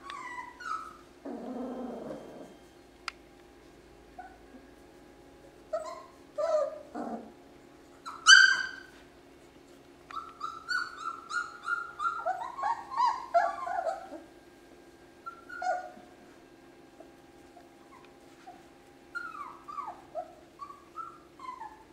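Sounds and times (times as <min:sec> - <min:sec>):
puppies yipping and whimpering: 0:00.0 - 0:02.6, 0:05.7 - 0:07.3, 0:07.9 - 0:09.0, 0:10.1 - 0:14.3, 0:15.2 - 0:16.2, 0:17.0 - 0:21.9.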